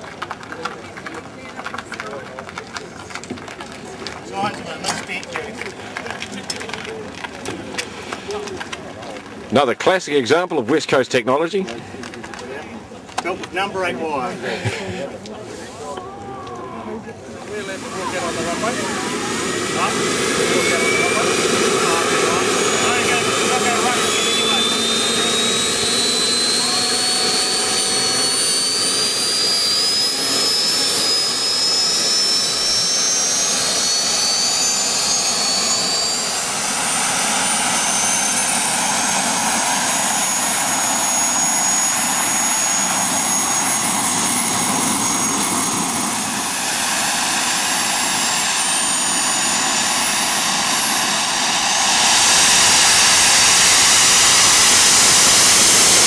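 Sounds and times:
small jet engines whining: 0.0 - 56.0.

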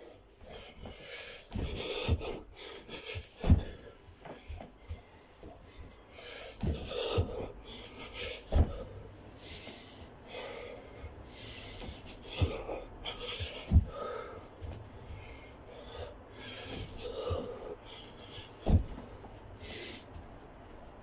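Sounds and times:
man panting and wheezing: 0.0 - 20.2
thuds on carpeted floor: 0.8 - 2.4, 3.1 - 7.5, 8.3 - 9.0, 11.7 - 14.9, 18.6 - 19.4.

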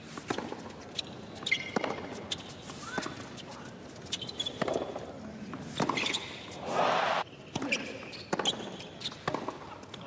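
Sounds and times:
short rush of noise: 6.6 - 7.2.

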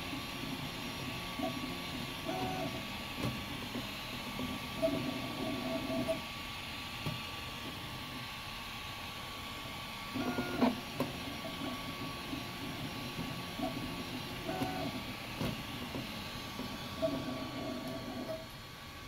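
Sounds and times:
stepper motors whining: 10.1 - 18.5.

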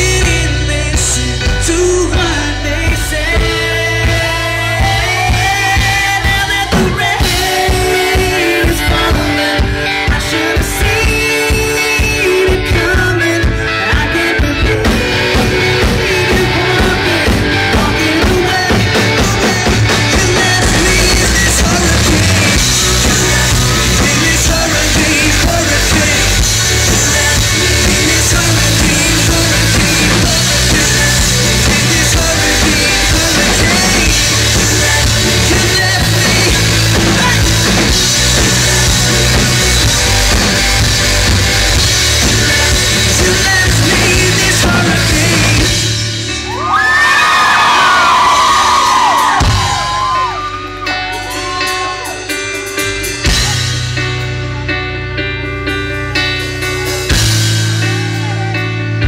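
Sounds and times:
man singing: 0.0 - 46.8
live rock band playing: 0.0 - 59.0.

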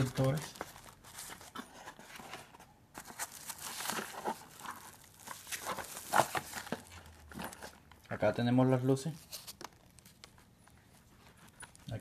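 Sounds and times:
sharp packaging crackle: 0.0 - 1.6, 3.0 - 7.9
packaging crinkling and rustling: 0.0 - 12.0.

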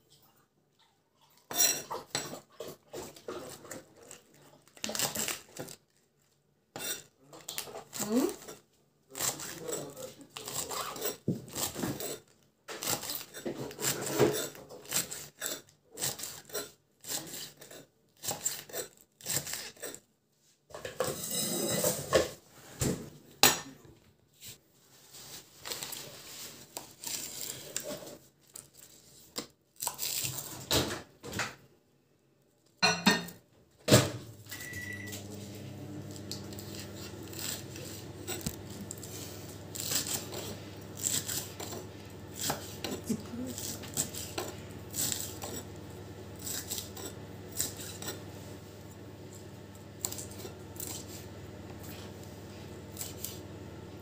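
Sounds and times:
knife chopping on wooden board: 36.2 - 45.8.

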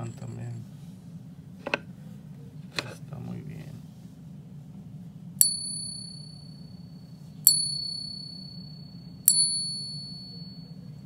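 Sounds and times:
silver coin tapping with clear ring: 5.4 - 6.8, 7.4 - 11.0.

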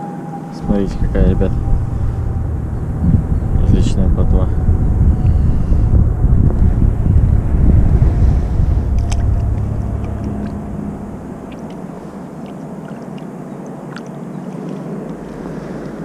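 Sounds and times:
steady low drone: 0.0 - 16.0
wind rumbling on microphone: 0.0 - 16.0.

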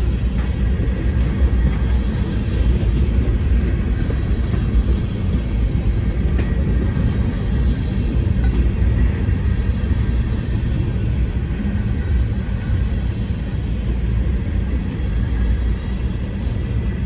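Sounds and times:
steel wheels rumbling on rail: 0.0 - 17.0.

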